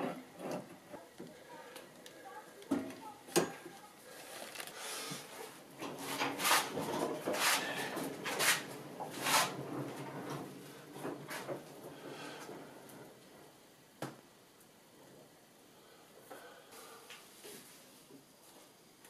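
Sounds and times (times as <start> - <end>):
scraping sliding strokes: 6.0 - 9.8.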